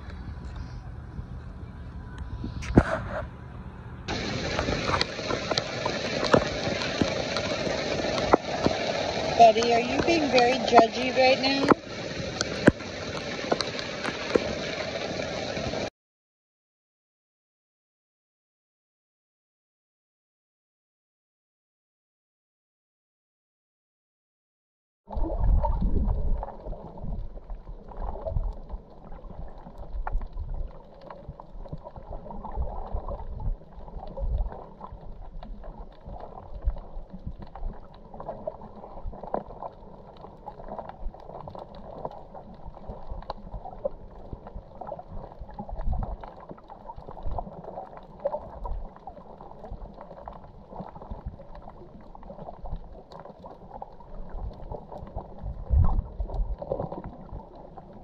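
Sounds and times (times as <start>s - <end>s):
underwater rumbling and gurgling: 0.0s - 15.9s, 25.1s - 58.0s
small crackles: 4.1s - 15.9s, 25.1s - 58.0s.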